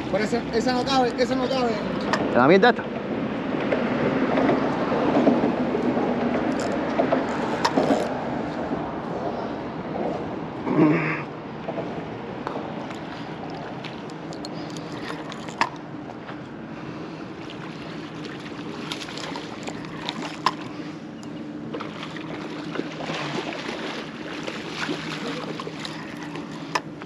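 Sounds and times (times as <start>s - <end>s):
low motor hum: 0.0s - 27.0s.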